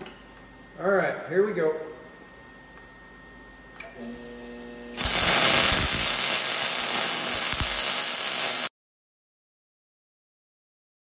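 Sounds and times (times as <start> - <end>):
welder arc crackling sizzle: 4.9 - 8.7.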